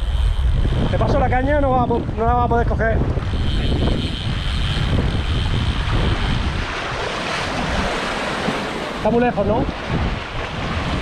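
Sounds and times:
thin high whine: 0.0s - 7.1s
sea surf: 0.0s - 11.0s
wind buffeting microphone: 0.0s - 11.0s.

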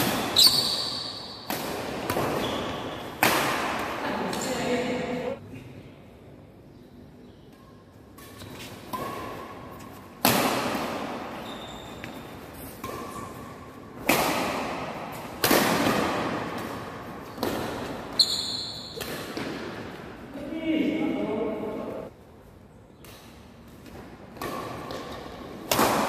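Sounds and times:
rackets smacking shuttlecock: 0.0s - 4.7s, 7.5s - 20.1s, 23.0s - 26.0s
shoe squeaks: 0.1s - 1.5s, 2.4s - 3.1s, 11.4s - 13.6s, 18.1s - 19.0s.

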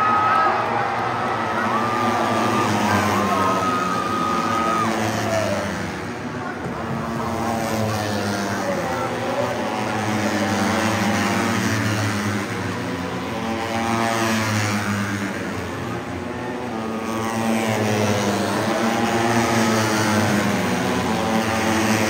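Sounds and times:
racing motorcycles passing: 0.0s - 22.0s
steady engine drone: 0.0s - 22.0s.

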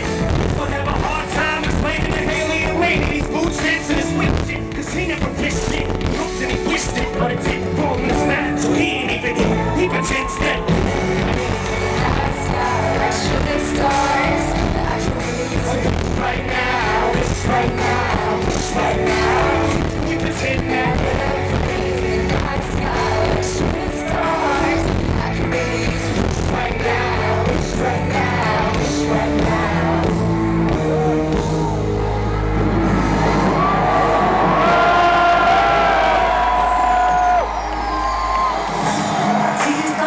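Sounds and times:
live hip-hop music: 0.0s - 40.0s
crowd whooping and cheering: 8.5s - 15.0s, 29.3s - 40.0s.

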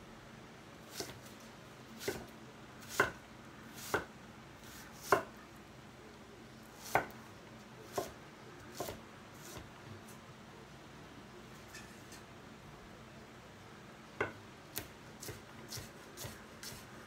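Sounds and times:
knife chopping on a wooden board: 0.9s - 1.2s, 2.0s - 3.2s, 3.8s - 4.1s, 4.7s - 5.3s, 6.8s - 7.2s, 7.9s - 9.6s, 14.2s - 16.8s.

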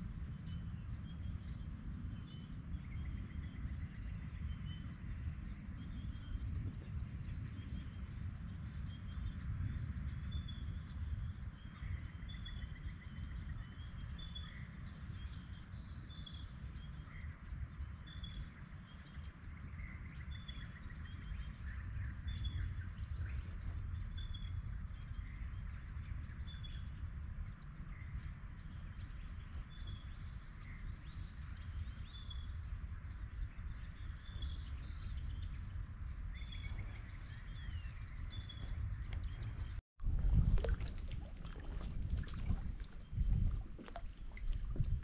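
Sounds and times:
steady low rumble: 33.1s - 45.0s.

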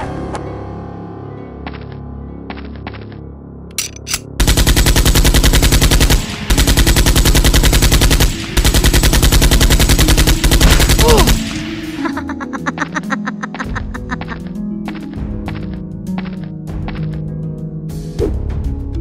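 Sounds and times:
machine-gun fire bursts: 4.4s - 11.7s.

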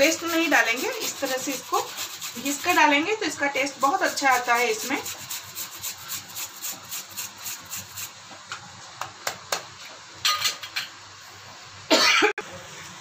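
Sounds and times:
ginger grating rasps: 0.0s - 8.2s
steel kitchenware clatter: 10.2s - 11.0s.

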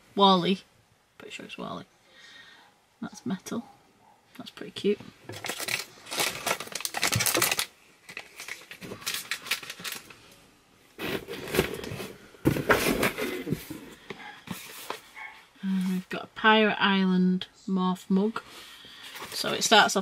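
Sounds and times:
packaging rustling and crinkling: 5.2s - 15.3s, 19.0s - 19.9s.

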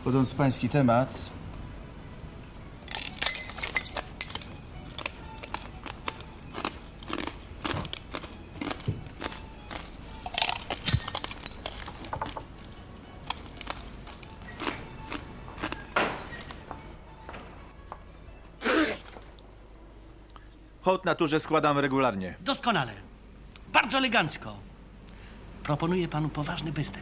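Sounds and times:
glass crunching being chewed: 2.8s - 16.6s.

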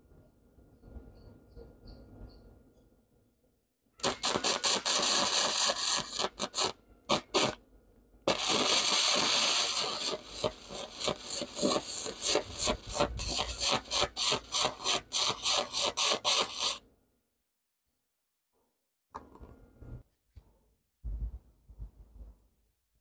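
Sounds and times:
welder arc crackling and hissing: 4.0s - 7.6s, 8.3s - 16.8s.

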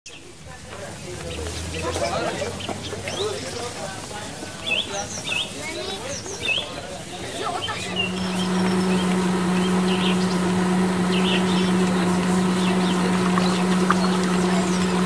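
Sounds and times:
birds chirping: 0.1s - 15.0s
small juicer motor running: 7.7s - 15.0s.

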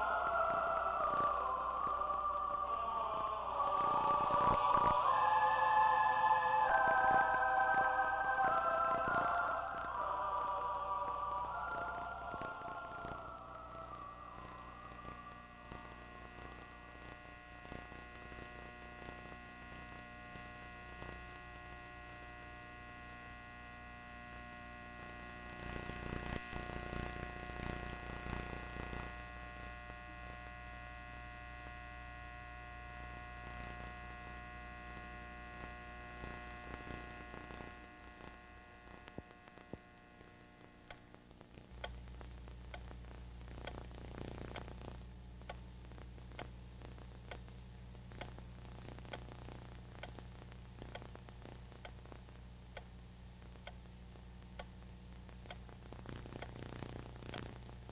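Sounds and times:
electrical mains hum: 0.0s - 57.9s
faint clicks: 35.6s - 53.9s, 54.5s - 57.8s.

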